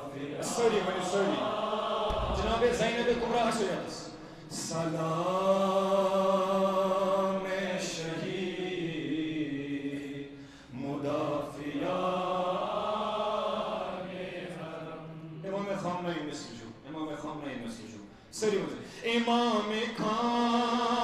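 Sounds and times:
man chanting: 0:02.3 - 0:05.2.

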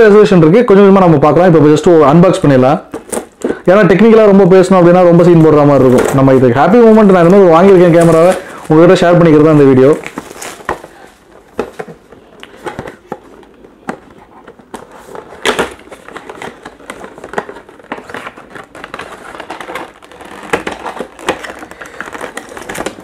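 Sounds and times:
cardboard box rustling: 0:05.8 - 0:23.0.

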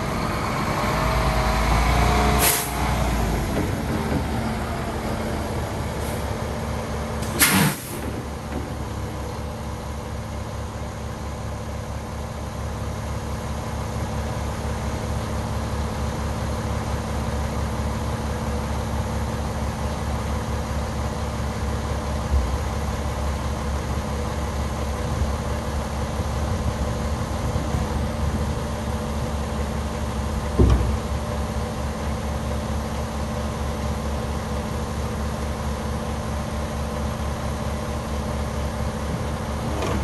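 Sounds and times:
diesel truck engine idling: 0:00.0 - 0:40.0
sharp thump: 0:30.6 - 0:31.0.

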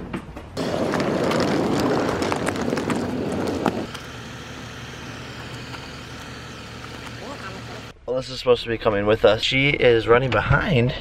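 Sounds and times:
vehicle engine running: 0:02.1 - 0:07.9.

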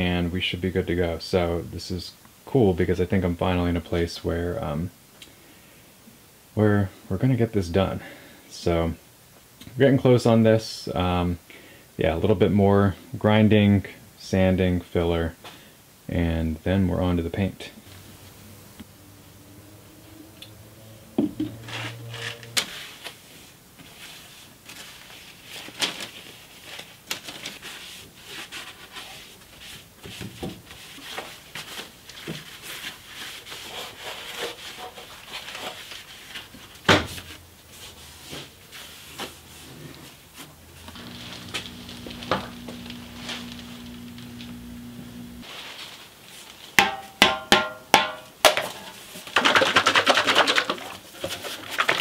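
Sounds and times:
pad rubbing on sheet metal: 0:32.3 - 0:36.3
low steady hum: 0:39.4 - 0:45.4.

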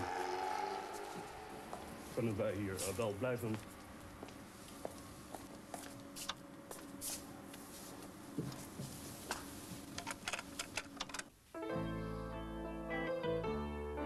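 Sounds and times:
music: 0:11.6 - 0:14.0.

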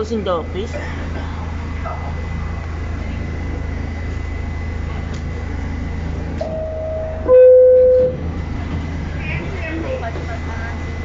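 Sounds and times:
low train hum: 0:00.0 - 0:11.0
two-tone door chime: 0:06.4 - 0:08.2.

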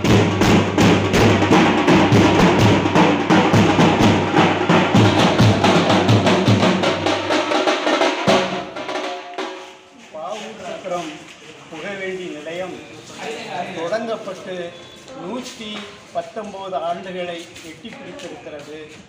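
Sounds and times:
deep bass drum beat: 0:00.0 - 0:09.2
drum rolls: 0:00.0 - 0:11.0.

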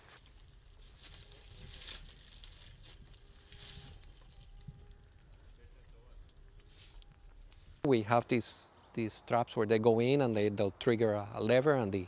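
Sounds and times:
animal rustling in trap: 0:00.8 - 0:04.5
high-pitched animal chirps: 0:04.0 - 0:04.2, 0:05.4 - 0:06.8.

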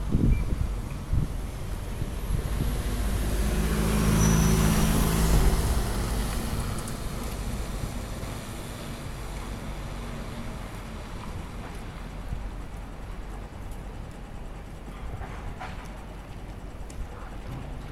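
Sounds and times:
traffic hum: 0:00.0 - 0:17.9
vehicle engine passing: 0:01.4 - 0:08.8.

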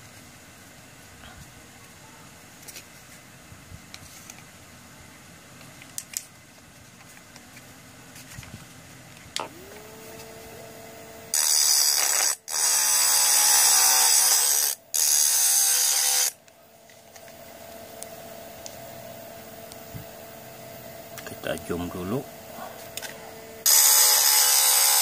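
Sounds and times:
small motor whining: 0:09.4 - 0:16.4, 0:22.9 - 0:25.0
blade grinding on stone: 0:11.4 - 0:16.3, 0:23.7 - 0:25.0.

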